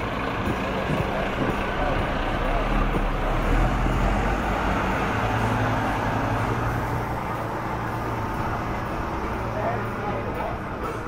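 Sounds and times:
vehicle engine low hum: 0.0 - 11.0.

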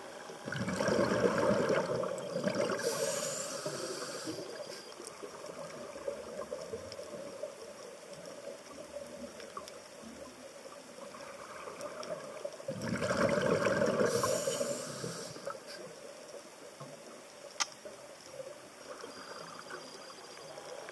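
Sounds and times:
underwater hiss: 0.0 - 6.5, 11.0 - 16.1
diver's exhaled bubbles rushing: 0.4 - 3.0, 12.7 - 14.3
sharp click: 17.6 - 17.8.

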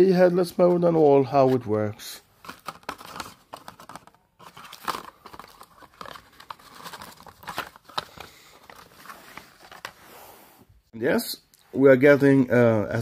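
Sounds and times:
packaging crinkling: 2.4 - 9.9.

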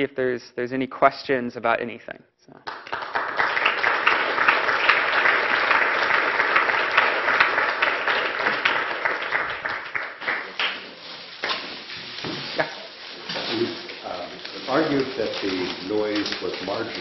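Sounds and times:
audience applauding: 2.6 - 11.8.

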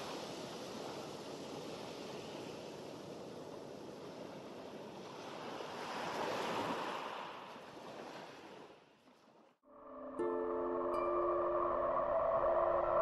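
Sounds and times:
small waves breaking on sand: 0.0 - 9.5.

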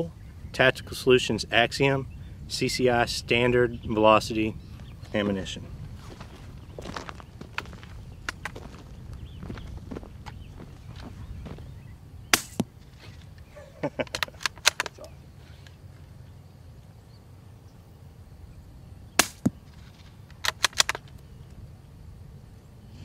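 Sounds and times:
suppressed rifle shots: 12.3 - 12.7, 19.2 - 19.8, 20.4 - 21.1.

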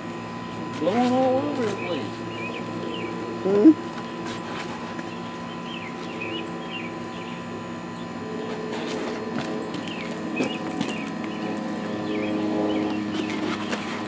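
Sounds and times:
small birds chirping: 0.4 - 3.4, 5.0 - 9.0, 9.6 - 13.4.

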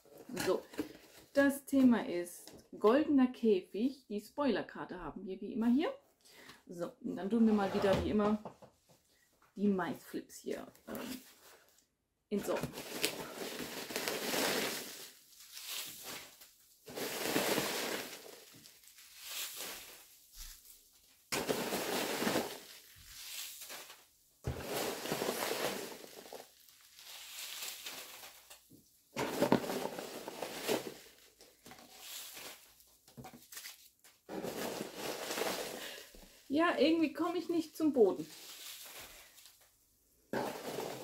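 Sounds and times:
hands rustling packing peanuts: 12.4 - 36.6, 38.1 - 41.0.

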